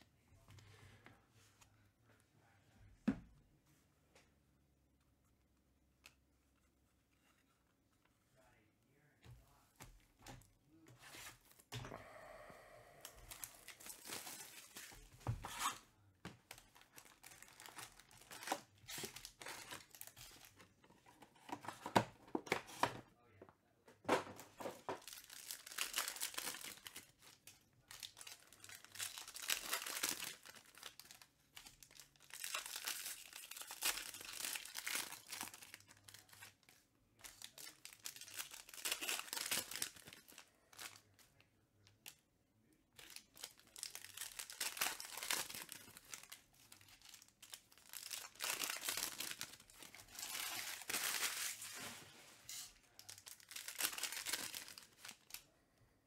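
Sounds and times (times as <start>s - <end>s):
foil wrappers tearing and crinkling: 37.4s - 40.4s, 43.3s - 51.9s, 52.5s - 55.4s.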